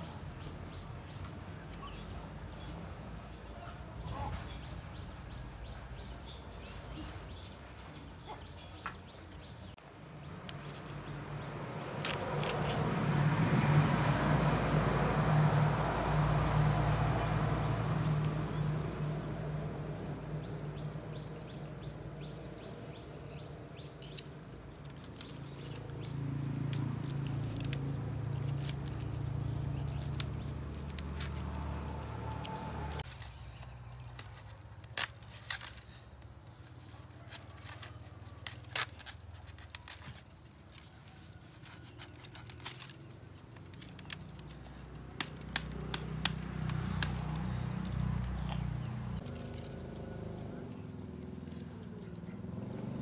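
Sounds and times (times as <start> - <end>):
low engine hum: 10.1 - 34.6, 41.7 - 53.0.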